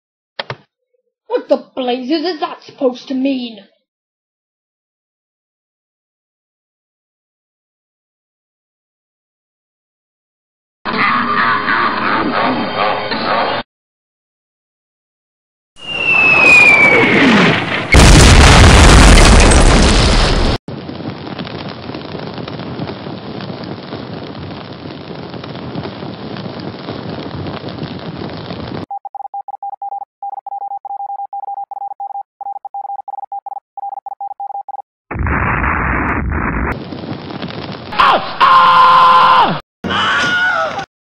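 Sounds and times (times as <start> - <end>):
falling bomb whistle: 15.8 - 18.3
loud explosion: 15.8 - 28.9, 35.1 - 38.5.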